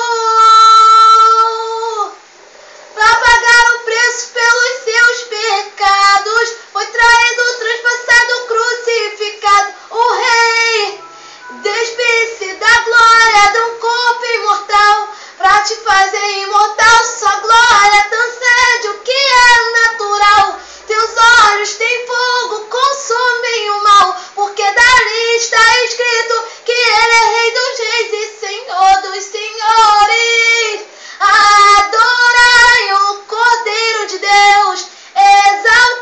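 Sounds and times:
girl singing unaccompanied: 0:00.0 - 0:02.3, 0:03.0 - 0:36.0
singer breathing: 0:11.1 - 0:11.5, 0:15.1 - 0:15.4, 0:20.6 - 0:20.9, 0:30.8 - 0:31.2, 0:34.9 - 0:35.2.

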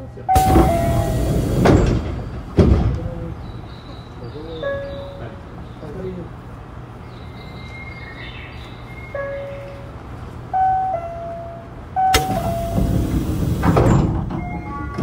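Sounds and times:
sliding doors rushing: 0:00.4 - 0:03.7, 0:12.1 - 0:15.0.

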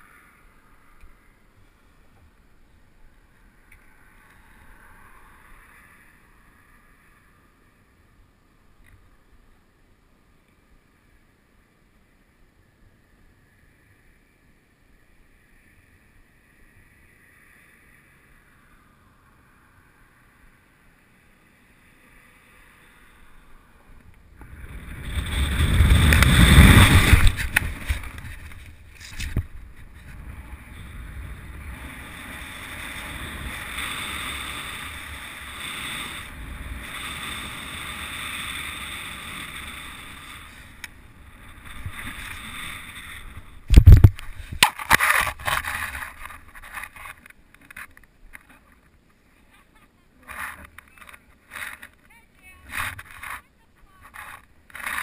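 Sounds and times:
wind rushing over microphone: 0:23.9 - 0:47.3.

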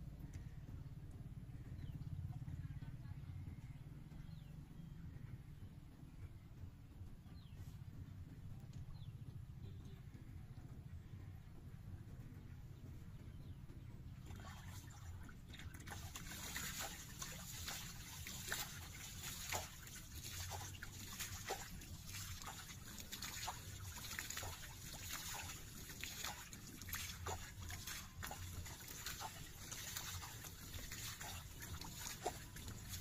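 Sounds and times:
steady low rumble: 0:00.0 - 0:33.0
water splashing and dripping: 0:14.2 - 0:33.0.

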